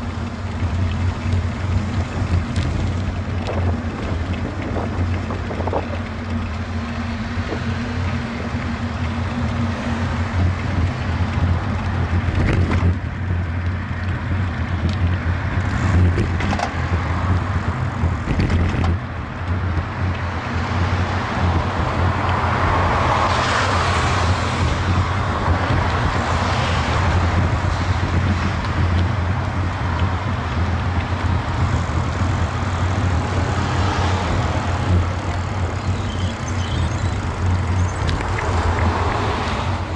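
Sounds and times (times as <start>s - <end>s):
traffic noise: 0.0s - 39.9s
wind rumble on microphone: 0.0s - 39.9s.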